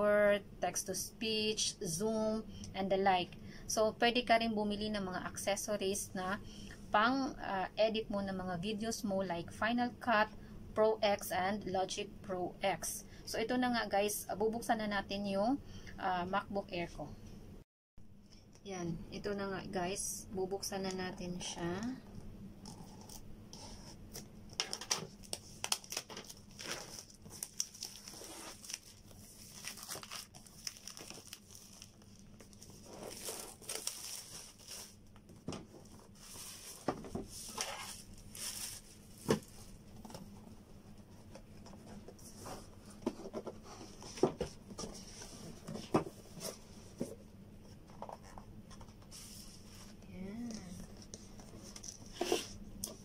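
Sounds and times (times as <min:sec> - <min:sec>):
plastic wrap crinkling and tearing: 0:24.6 - 0:35.0, 0:36.1 - 0:39.6.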